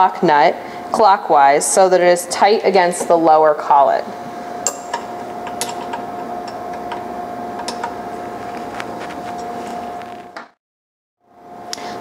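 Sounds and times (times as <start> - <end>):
steady hum: 0.0 - 10.6.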